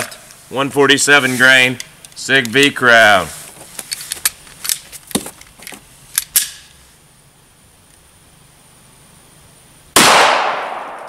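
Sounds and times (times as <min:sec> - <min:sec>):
pistol metallic clicks: 0:06.1 - 0:06.7.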